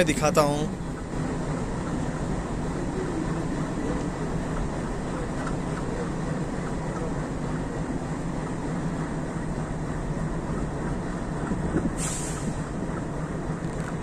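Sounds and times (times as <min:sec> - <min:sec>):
passenger train rumble: 0:00.0 - 0:14.0
short air hiss: 0:12.0 - 0:12.7.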